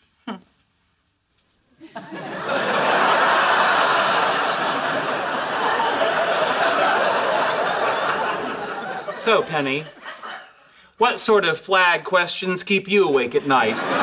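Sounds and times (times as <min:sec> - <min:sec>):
studio audience laughing: 0:01.8 - 0:10.8, 0:13.4 - 0:14.0.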